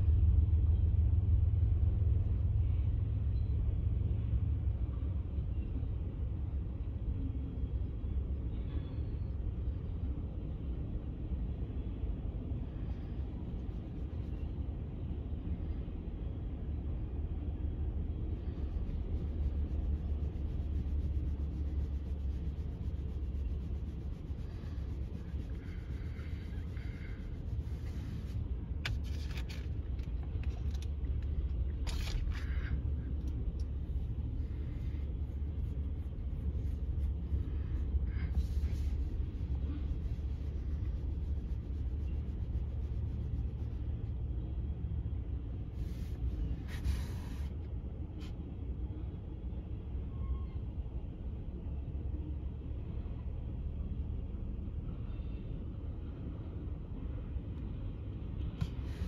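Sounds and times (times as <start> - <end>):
train wheels rumbling on rail: 0.0 - 47.5
brief scraping noises: 25.4 - 31.0, 31.8 - 32.8.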